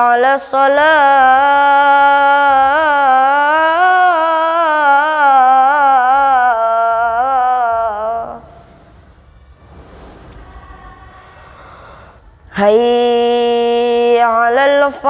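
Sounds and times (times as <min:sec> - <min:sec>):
boy singing call to prayer: 0:00.0 - 0:08.4, 0:12.5 - 0:15.0.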